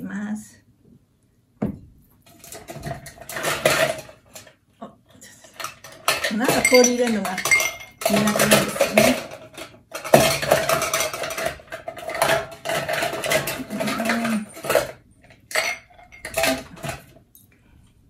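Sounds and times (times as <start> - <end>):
ice cubes rattling in metal tin: 2.3 - 4.5, 5.4 - 17.2
ice clinking on metal: 5.4 - 17.1.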